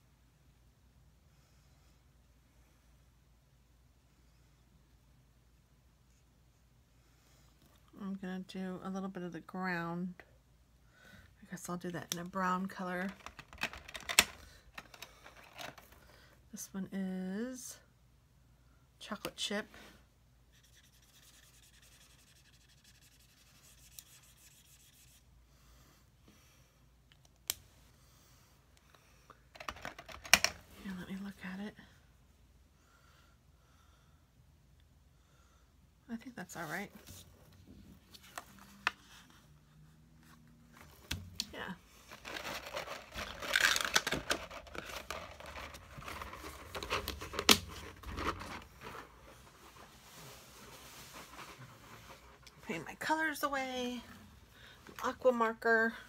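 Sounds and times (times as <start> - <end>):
plastic case clicking and rubbing: 13.1 - 16.0, 29.6 - 30.6, 42.1 - 49.0
marker scratching on cardstock: 20.5 - 25.3.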